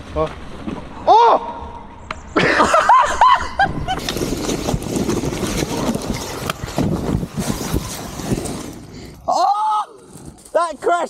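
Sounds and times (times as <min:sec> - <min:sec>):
person shouting: 0:01.1 - 0:01.5, 0:09.3 - 0:10.0
bike crashing and scraping on dirt: 0:03.8 - 0:09.3, 0:10.0 - 0:11.0.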